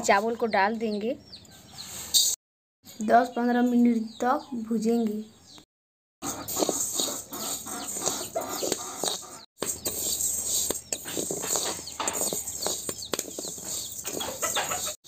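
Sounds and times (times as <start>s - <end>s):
chickens clucking: 6.2s - 9.8s, 10.7s - 15.0s
spoon scraping and stirring rice: 6.2s - 15.0s.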